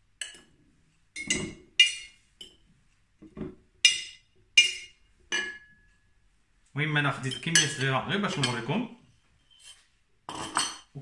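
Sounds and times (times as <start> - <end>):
metal utensil clinking on glass jar: 7.2 - 8.7.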